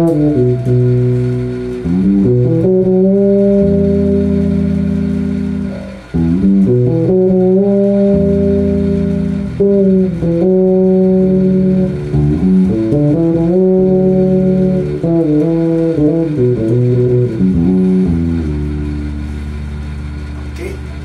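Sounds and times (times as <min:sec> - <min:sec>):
fretless electric bass playing: 0:00.0 - 0:21.0.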